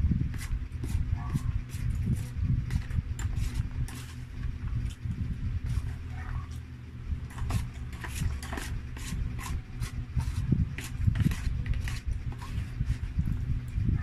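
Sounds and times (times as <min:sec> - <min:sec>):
steady low hum: 0:00.0 - 0:14.0
plastic spoon scraping rice: 0:00.3 - 0:04.3, 0:07.3 - 0:13.2.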